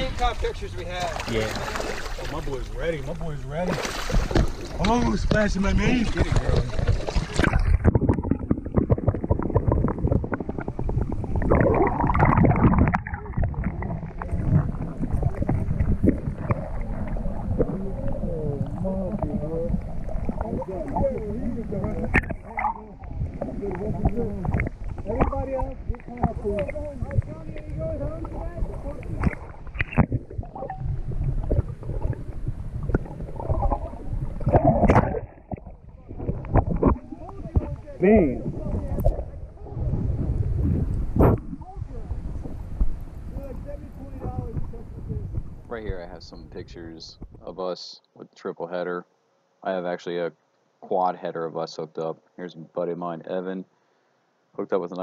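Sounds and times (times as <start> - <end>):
water splashing and sloshing: 0.0 - 46.5
low rumble: 6.6 - 47.5.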